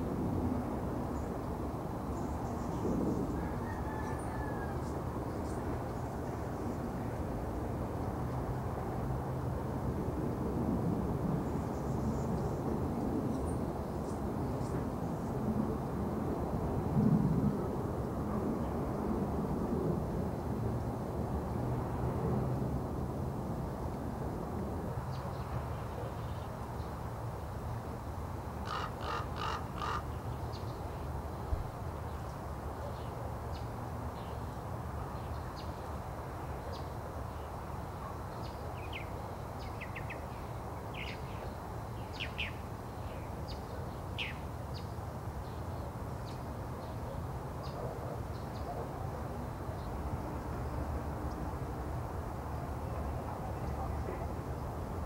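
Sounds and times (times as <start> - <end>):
crow cawing: 28.6 - 30.1.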